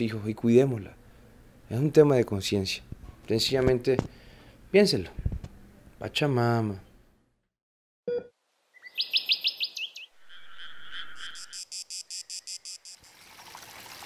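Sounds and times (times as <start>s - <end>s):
bird trilling: 8.8s - 12.8s
insect-like pulsing: 10.2s - 13.0s
running water: 13.0s - 14.0s.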